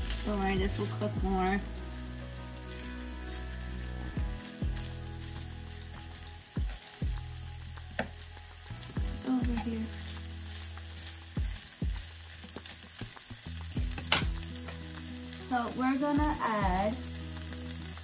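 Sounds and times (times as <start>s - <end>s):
sausage sizzling in a skillet: 0.0s - 18.0s.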